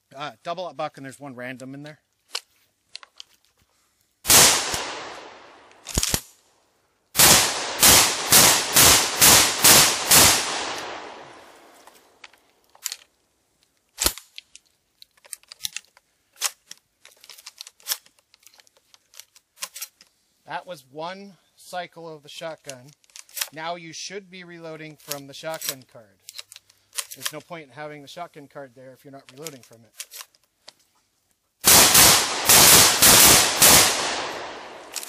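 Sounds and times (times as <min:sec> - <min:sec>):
gun handling clicks and rattles: 0:02.1 - 0:03.7, 0:04.6 - 0:06.4, 0:10.2 - 0:20.2, 0:22.6 - 0:23.6, 0:25.0 - 0:27.6, 0:29.2 - 0:31.4, 0:32.0 - 0:35.0
shotgun shots: 0:04.3 - 0:06.2, 0:07.2 - 0:11.8, 0:31.6 - 0:35.0.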